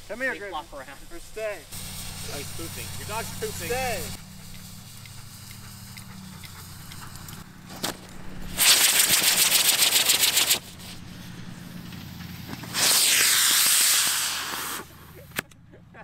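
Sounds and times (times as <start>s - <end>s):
rocket motor hissing and crackling: 0.0s - 15.5s
rocket hiss with falling whistle: 1.7s - 5.5s, 8.5s - 15.0s.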